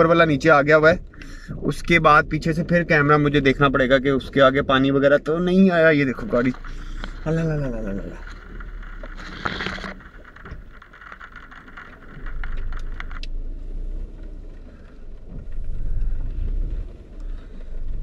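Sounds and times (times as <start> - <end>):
muffled low rumble: 0.0 - 18.0
leafy branches scraping a car: 6.0 - 13.2.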